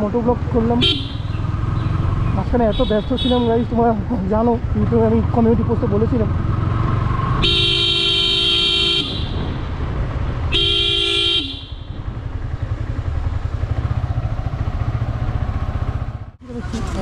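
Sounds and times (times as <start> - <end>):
motorcycle engine rumble: 0.0 - 17.0
wind: 0.0 - 17.0
vehicle horn blasts: 0.8 - 1.3, 7.4 - 9.5, 10.5 - 12.0.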